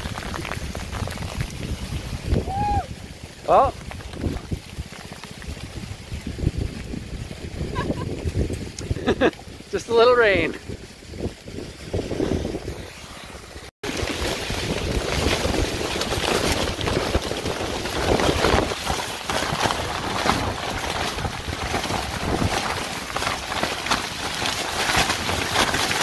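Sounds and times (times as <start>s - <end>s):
wind buffeting microphone: 0.0s - 13.2s, 13.8s - 26.0s
heavy rain: 0.0s - 26.0s
tent fabric flapping: 0.0s - 26.0s.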